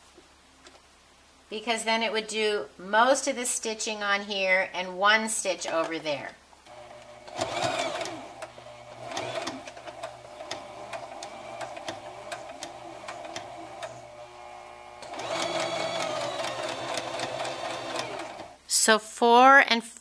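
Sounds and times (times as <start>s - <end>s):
sewing machine clicking: 6.7s - 18.6s.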